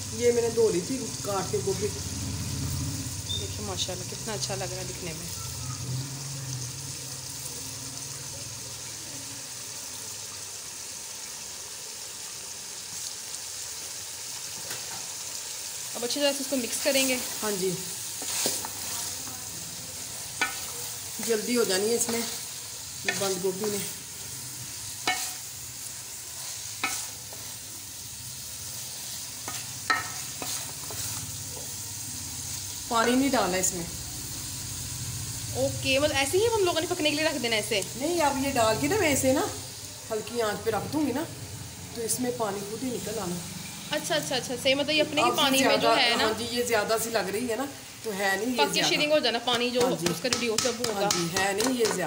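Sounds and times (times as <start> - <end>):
meat sizzling in pot: 0.0 - 52.0
cabbage stirred in metal pot: 16.0 - 31.8
spoon clinking against pot: 29.5 - 30.2.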